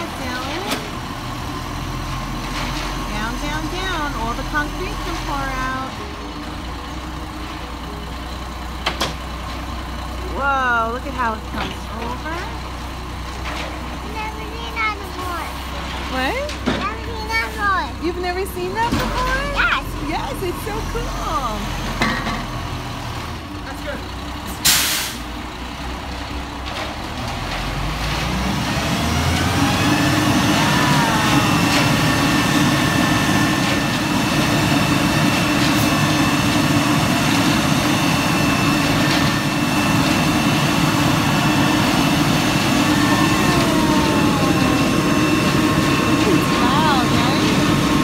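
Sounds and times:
diesel engine rumble: 0.0s - 48.0s
air brakes hiss: 24.6s - 25.3s.

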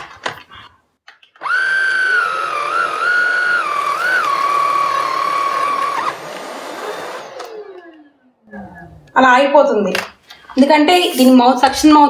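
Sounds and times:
handheld vacuum cleaner whine: 1.4s - 8.4s.

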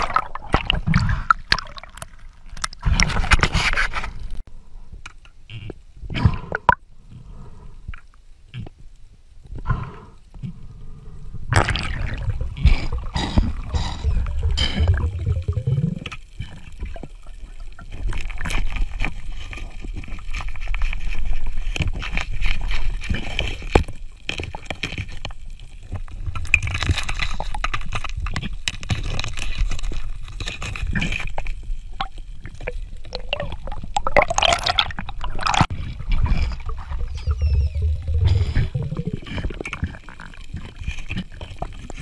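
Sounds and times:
underwater bubbles gurgling: 0.0s - 3.0s, 11.5s - 18.8s, 31.8s - 42.0s
hissing rush of bubbles: 32.6s - 35.7s, 37.7s - 40.7s.

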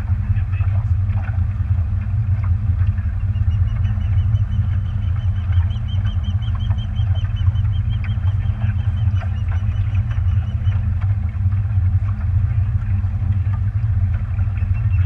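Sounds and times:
boat engine rumbling: 0.0s - 15.0s
water noise: 0.0s - 15.0s
wind: 0.0s - 15.0s.

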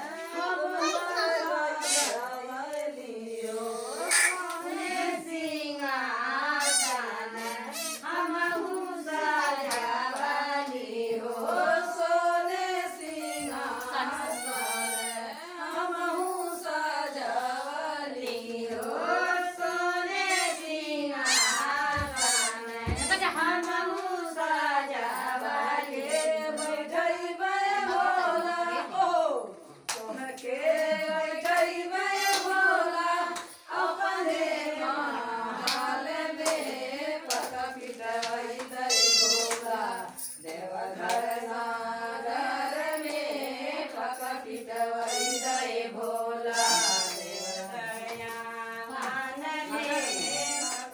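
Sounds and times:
women singing a folk song: 0.0s - 50.9s
hand claps: 9.6s - 10.3s, 29.8s - 32.6s, 35.6s - 38.8s, 39.4s - 39.8s, 40.5s - 41.3s.

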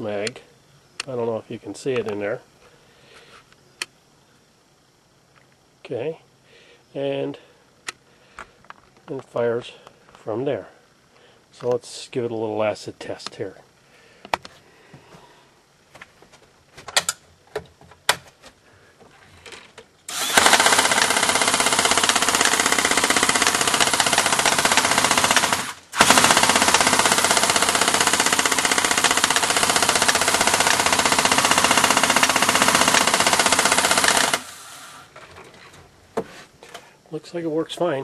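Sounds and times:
airsoft minigun rattling: 20.1s - 34.5s.

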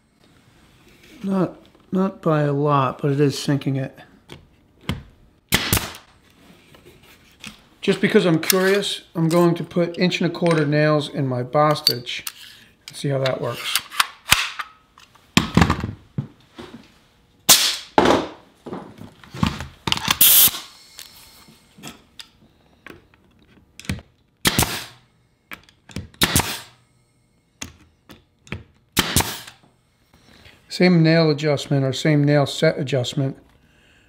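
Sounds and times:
nail gun firing into wood: 5.5s - 6.1s, 17.5s - 18.4s, 24.4s - 25.0s, 26.1s - 26.8s, 29.0s - 29.6s
air hiss: 20.2s - 21.5s.

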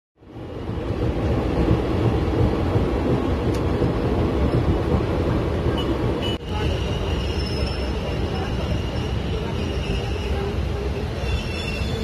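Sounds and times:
train rumble from inside coach: 0.2s - 12.0s.

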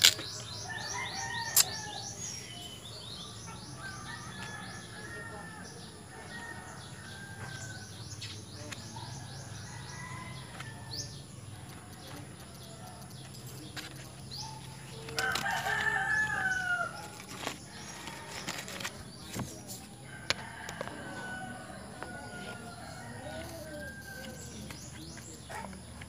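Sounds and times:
small birds chirping: 0.0s - 26.0s
rooster crowing: 0.6s - 2.1s, 14.9s - 17.0s, 20.0s - 24.6s.

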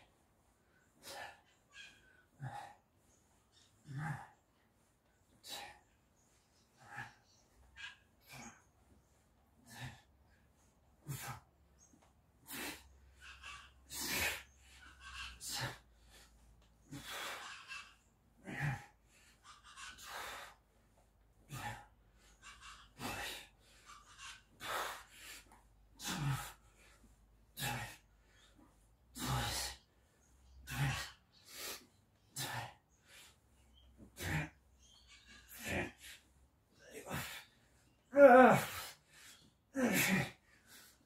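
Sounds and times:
man grunting: 3.8s - 4.4s, 18.4s - 18.9s, 27.6s - 28.0s, 29.2s - 29.8s, 36.8s - 37.4s, 38.1s - 38.9s, 39.8s - 40.4s.

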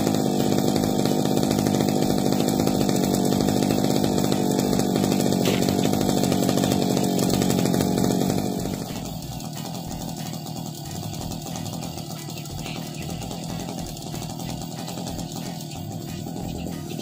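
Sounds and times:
brush cutter engine idling: 0.0s - 17.0s.

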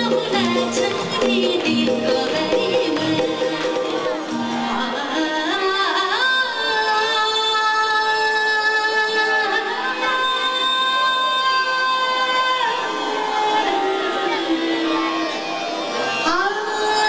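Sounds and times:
instrumental accompaniment: 0.0s - 7.1s
woman singing into microphone: 0.0s - 17.0s.

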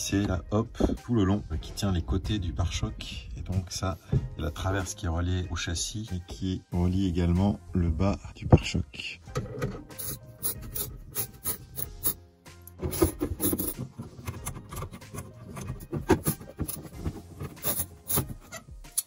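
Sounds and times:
screwdriver scraping metal and plastic: 9.3s - 19.0s.

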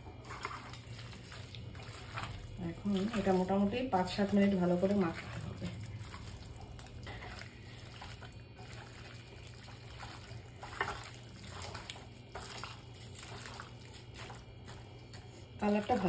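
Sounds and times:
steady low hum: 0.0s - 16.0s
wet squishing of kneaded meat: 0.0s - 16.0s.

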